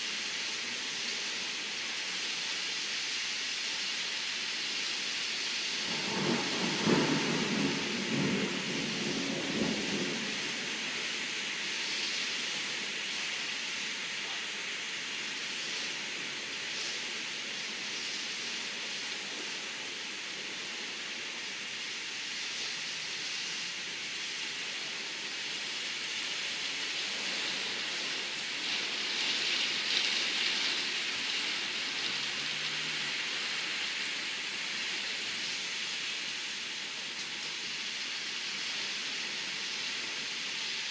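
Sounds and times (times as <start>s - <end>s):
heavy rain and wind hiss: 0.0s - 40.9s
deep rumble of thunder: 5.8s - 11.0s.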